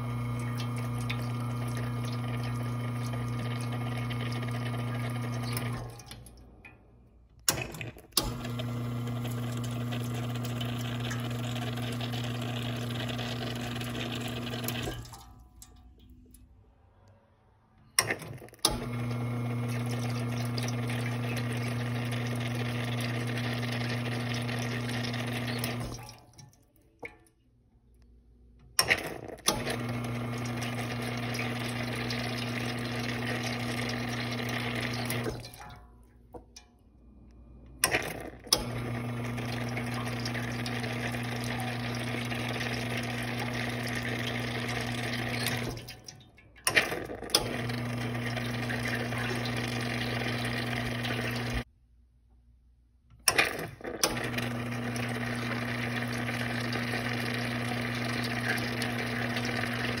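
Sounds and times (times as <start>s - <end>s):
espresso machine pump humming: 0.0s - 6.0s, 7.4s - 15.2s, 18.0s - 26.0s, 28.8s - 35.4s, 37.8s - 45.8s, 46.7s - 51.7s, 53.3s - 60.0s.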